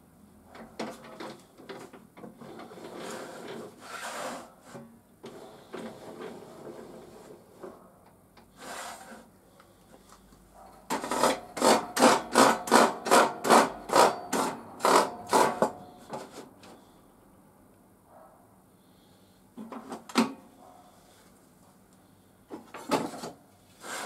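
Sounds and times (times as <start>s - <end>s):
saw fence rasping along rails: 2.4s - 7.3s, 8.5s - 9.3s, 10.9s - 15.9s, 23.8s - 24.0s.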